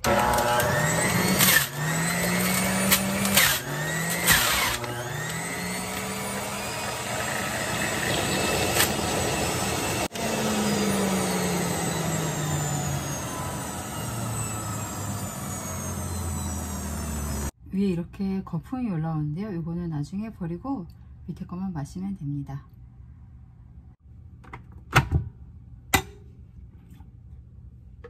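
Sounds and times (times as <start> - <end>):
juicer motor running: 0.0 - 17.5.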